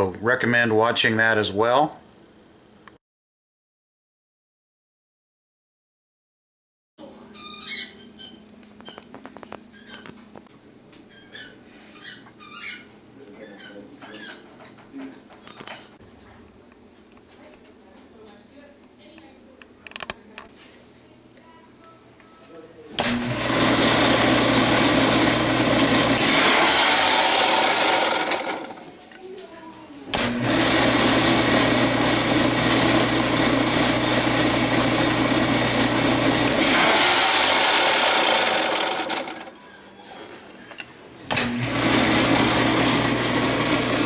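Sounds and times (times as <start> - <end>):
high-pitched squeaks: 7.3 - 10.2, 11.1 - 14.4.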